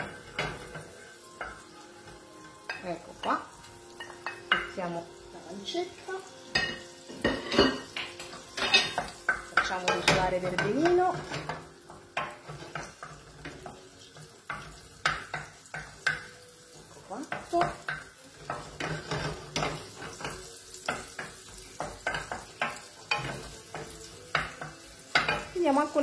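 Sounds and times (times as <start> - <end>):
pancetta sizzling in skillet: 0.0 - 26.0
spoon scraping and knocking pan: 0.0 - 26.0.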